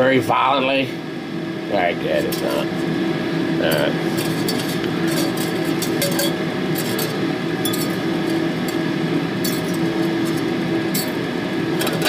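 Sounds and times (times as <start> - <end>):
steady hum: 0.0 - 12.0
wire clinking against glass: 4.5 - 8.0.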